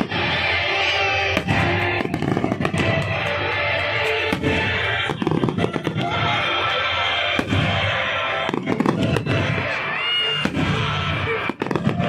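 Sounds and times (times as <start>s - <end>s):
firework shells bursting: 0.0s - 6.4s, 7.3s - 9.8s
fireworks crackling: 0.0s - 12.0s
music: 0.0s - 12.0s.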